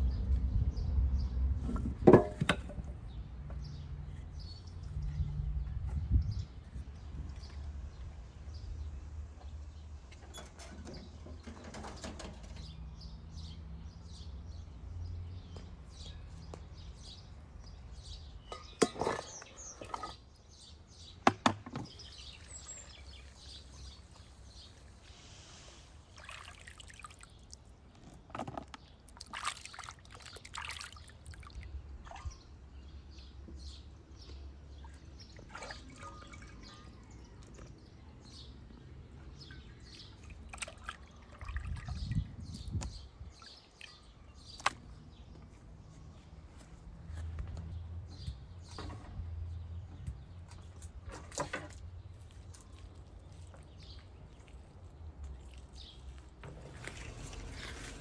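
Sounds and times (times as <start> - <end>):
birds chirping: 3.0 - 58.0
water sloshing in a basin: 21.8 - 32.7, 34.8 - 38.0, 39.0 - 45.1, 50.5 - 58.0.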